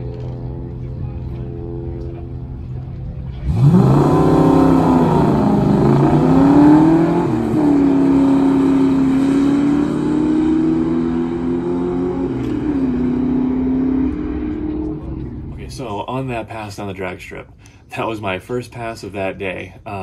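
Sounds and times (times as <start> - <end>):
car engine accelerating hard: 0.0 - 15.8.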